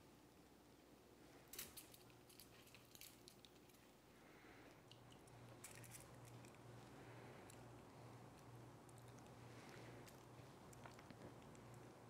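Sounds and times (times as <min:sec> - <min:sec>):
steady low hum: 0:00.0 - 0:12.0
faint wet squishes: 0:04.7 - 0:12.0.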